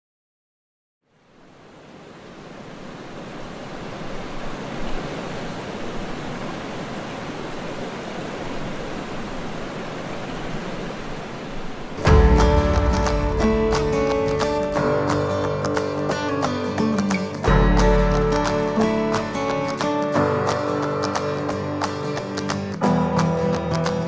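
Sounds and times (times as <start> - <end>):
steady rushing noise: 1.5 - 16.8
acoustic guitar music: 12.0 - 24.0.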